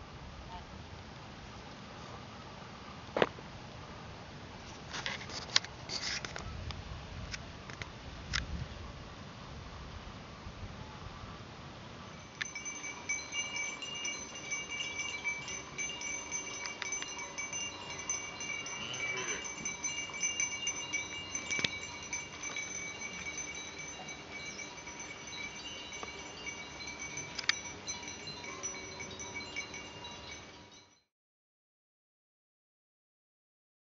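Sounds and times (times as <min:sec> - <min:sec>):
chimes ringing: 0:12.1 - 0:31.1
sharp clinks: 0:12.1 - 0:31.1.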